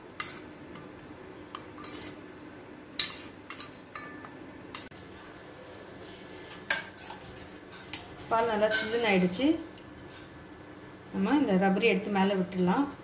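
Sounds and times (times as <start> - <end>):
spoon clinking against steel bowl: 3.0 - 4.3.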